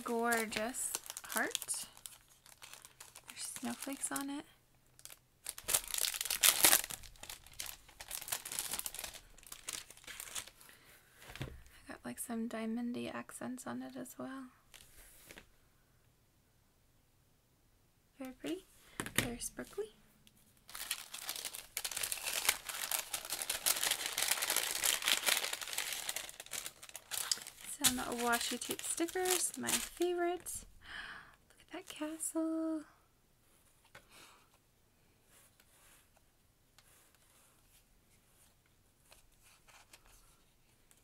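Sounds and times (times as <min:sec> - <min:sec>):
cellophane packet crinkling: 0:00.0 - 0:10.7, 0:20.6 - 0:30.5.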